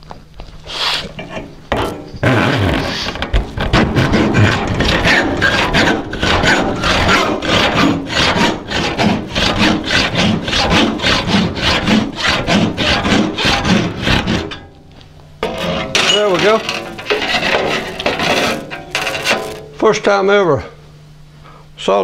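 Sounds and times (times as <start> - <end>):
handsaw sawing metal tubing: 2.2 - 14.6, 15.4 - 19.6.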